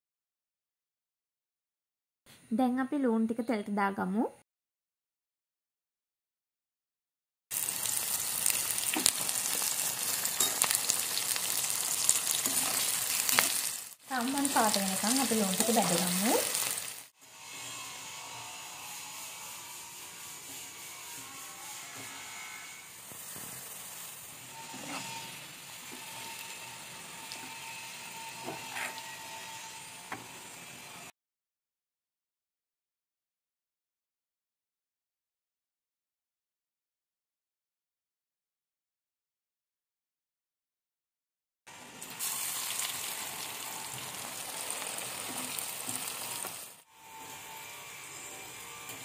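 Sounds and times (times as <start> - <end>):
onions sizzling in hot oil: 7.5 - 17.7, 18.7 - 31.1, 41.7 - 49.0.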